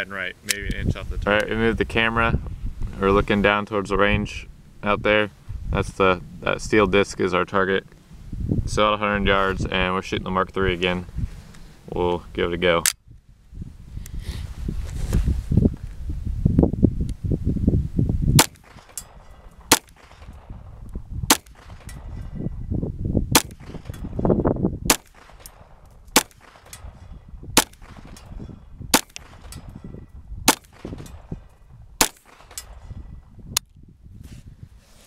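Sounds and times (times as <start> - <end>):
pistol shots: 18.4 - 20.7, 21.3 - 22.3, 23.3 - 24.2, 24.9 - 29.8, 30.5 - 32.9.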